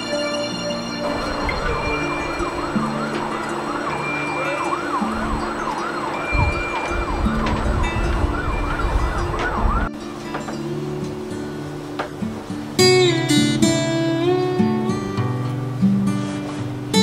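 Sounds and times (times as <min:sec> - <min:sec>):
siren yelping: 0:00.0 - 0:09.9
background music: 0:00.0 - 0:17.0.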